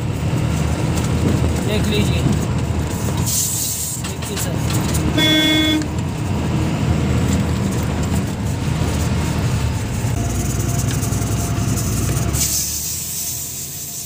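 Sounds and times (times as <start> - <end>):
truck engine rumbling: 0.0 - 14.0
tyres on the road: 0.0 - 14.0
truck horn: 5.1 - 6.0.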